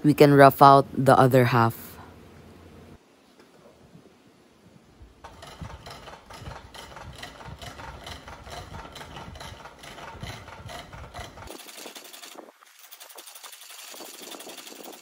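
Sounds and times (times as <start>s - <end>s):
chisel scraping on lathe: 5.2s - 15.0s.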